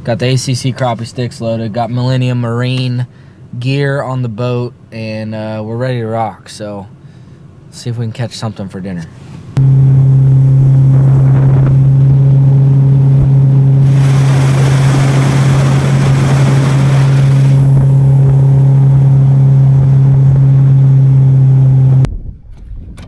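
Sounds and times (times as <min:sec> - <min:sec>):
outboard motor running: 0:09.6 - 0:22.1
wind and water rushing: 0:10.4 - 0:20.7.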